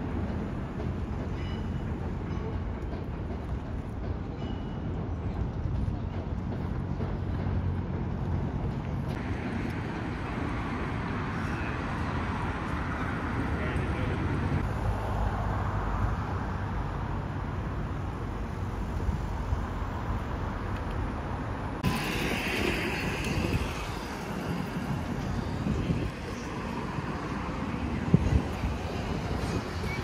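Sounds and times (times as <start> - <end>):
cars passing: 8.1 - 30.0.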